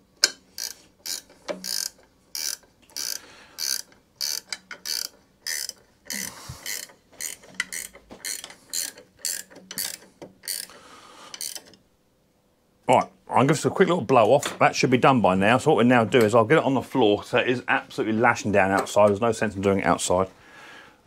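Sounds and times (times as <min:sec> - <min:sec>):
hand ratchet clicking: 0:00.2 - 0:11.8.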